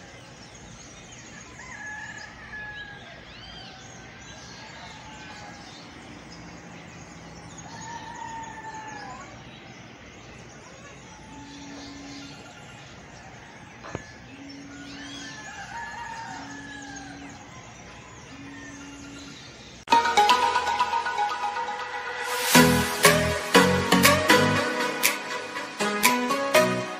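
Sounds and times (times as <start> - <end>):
small birds chirping: 0.0 - 19.9
rooster crowing: 1.3 - 9.6, 10.7 - 19.5.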